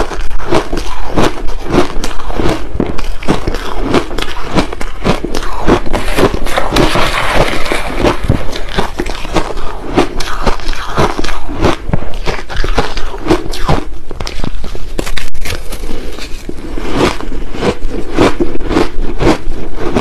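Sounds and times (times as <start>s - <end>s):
crushed ice being chewed: 0.0s - 20.0s
metal spoon scraping ice: 0.1s - 13.6s.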